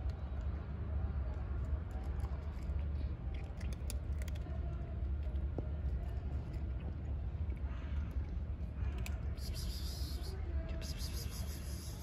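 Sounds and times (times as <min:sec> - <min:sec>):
cat crunching dry kibble: 0:01.2 - 0:10.0.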